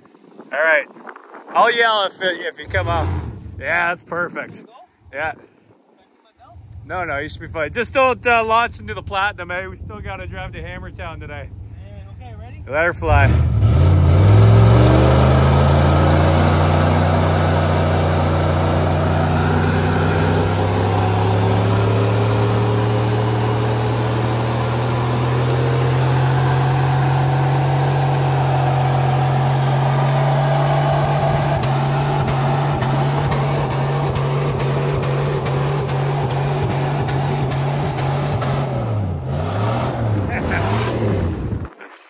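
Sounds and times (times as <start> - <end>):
truck engine revving: 2.6 - 3.6, 12.7 - 41.7.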